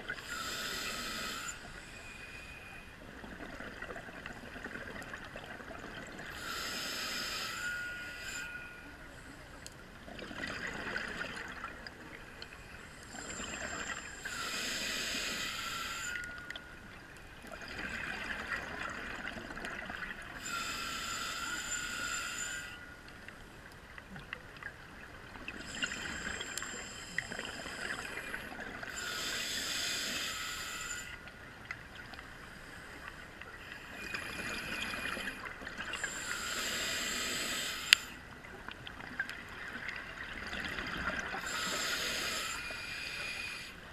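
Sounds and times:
regulator hissing inhale: 0.2s - 3.0s, 6.3s - 9.0s, 12.3s - 16.7s, 20.4s - 23.0s, 25.6s - 31.3s, 32.4s - 38.2s, 41.3s - 43.9s.

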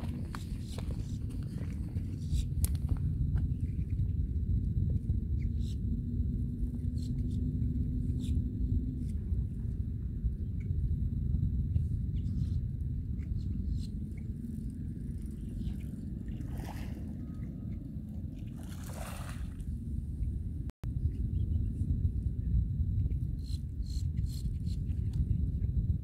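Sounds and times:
wind buffeting microphone: 0.0s - 26.0s
soft swishes of water: 14.6s - 19.8s.

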